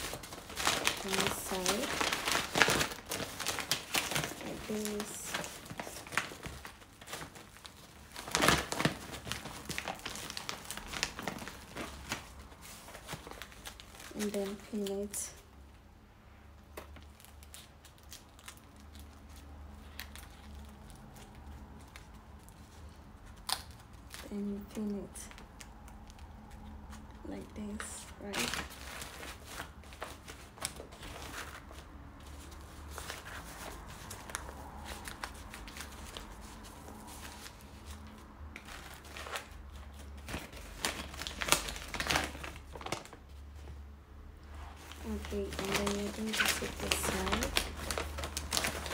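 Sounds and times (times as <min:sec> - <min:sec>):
stiff fabric rustling: 0:00.0 - 0:15.0
stiff fabric crackling and rustling: 0:00.0 - 0:15.4, 0:17.0 - 0:43.8, 0:44.4 - 0:48.9.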